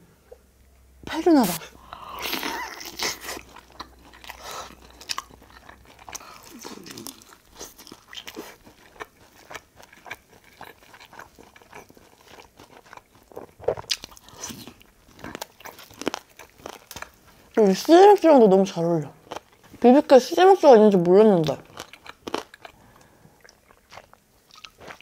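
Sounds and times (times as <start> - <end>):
chewing crispy chicken: 2.2 - 17.7, 21.4 - 25.0.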